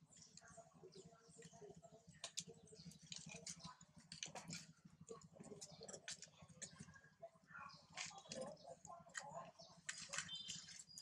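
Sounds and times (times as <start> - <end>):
leaf litter clicks and crackles: 1.4 - 6.9, 7.8 - 11.0.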